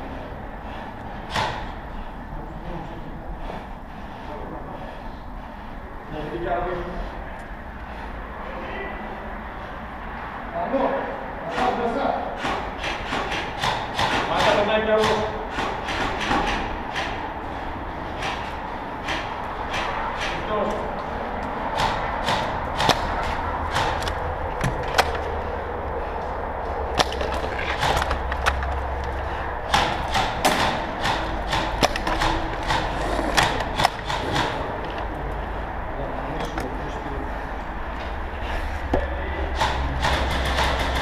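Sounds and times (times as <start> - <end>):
airsoft guns clicking and knocking: 12.4 - 17.2, 18.1 - 35.2, 39.0 - 41.0
steady low rumble: 16.7 - 41.0.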